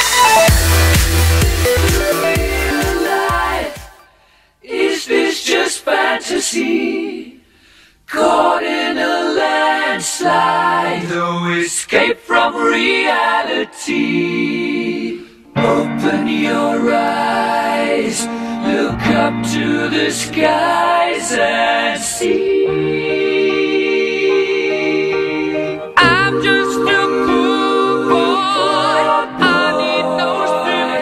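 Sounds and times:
dance track: 0.0 - 4.1
song with group singing: 0.0 - 31.0.

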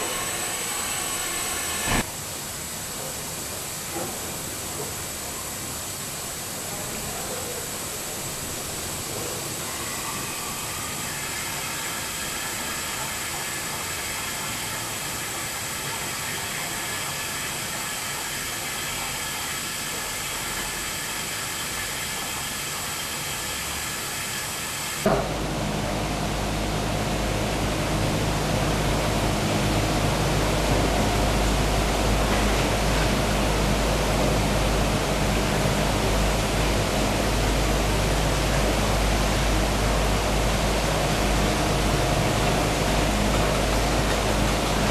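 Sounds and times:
steam press hissing: 0.0 - 2.1
steady hum: 0.0 - 2.4, 25.0 - 44.9.

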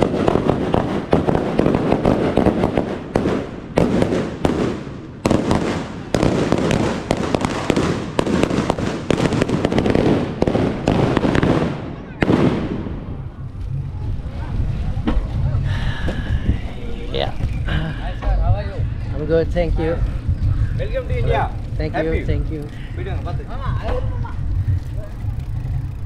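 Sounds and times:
firecrackers banging: 0.0 - 13.6.

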